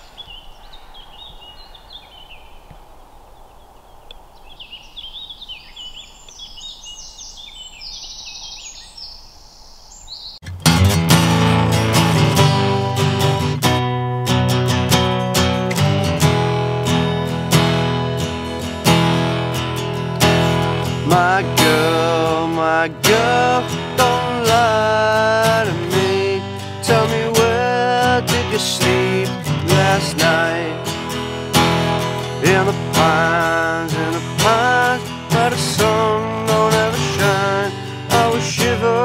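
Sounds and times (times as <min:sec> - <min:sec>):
acoustic guitar strumming chords: 0:10.4 - 0:39.0
man singing: 0:20.6 - 0:39.0.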